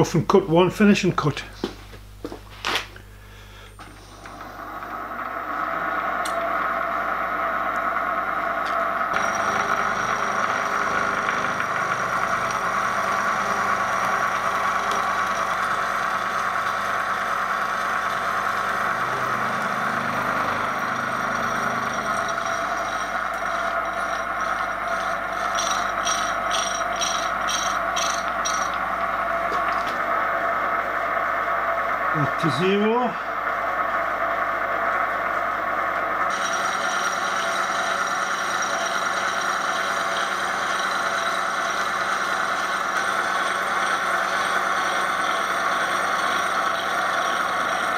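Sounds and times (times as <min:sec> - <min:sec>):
milling machine whine: 0:03.3 - 0:47.9
cutter cutting aluminium: 0:09.1 - 0:28.9, 0:36.3 - 0:47.9.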